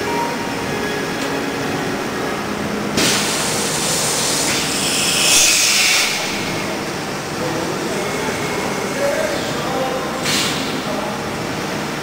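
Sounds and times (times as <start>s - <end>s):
machine humming: 0.0s - 10.1s
loud air hiss: 3.0s - 7.4s, 10.2s - 11.0s.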